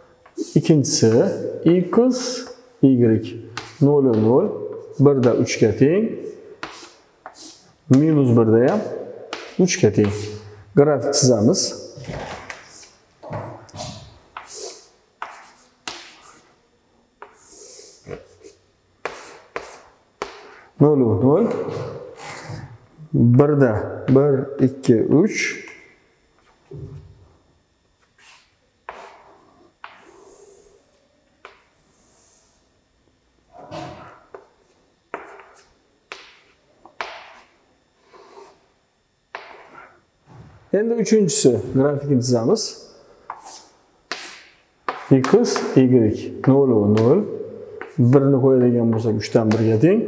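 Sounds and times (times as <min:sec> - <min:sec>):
chalk strokes and taps: 0:03.6 - 0:04.3, 0:06.6 - 0:10.4, 0:14.3 - 0:16.6, 0:17.2 - 0:20.7, 0:28.0 - 0:30.5, 0:34.3 - 0:38.6, 0:39.3 - 0:39.9, 0:43.3 - 0:45.8, 0:47.8 - 0:49.8
chalk scraping high: 0:06.6 - 0:07.7, 0:14.4 - 0:16.6, 0:17.2 - 0:20.6, 0:28.2 - 0:30.7, 0:43.3 - 0:45.1.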